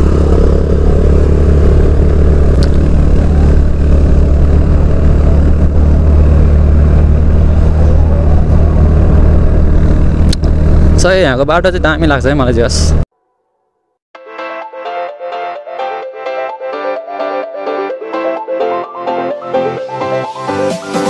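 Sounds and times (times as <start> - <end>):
motorcycle engine cruising: 0.0 - 13.0
road and wind noise: 0.0 - 13.0.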